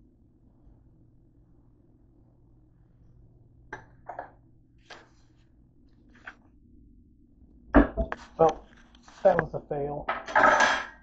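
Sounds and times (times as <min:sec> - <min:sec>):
low steady hum: 0:00.0 - 0:11.0
soft clicks and rustles: 0:08.0 - 0:09.6.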